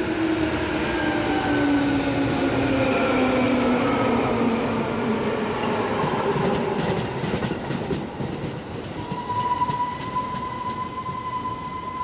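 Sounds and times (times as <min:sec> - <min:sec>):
electric train rolling past: 0:00.0 - 0:12.0
high squeal: 0:09.0 - 0:12.0.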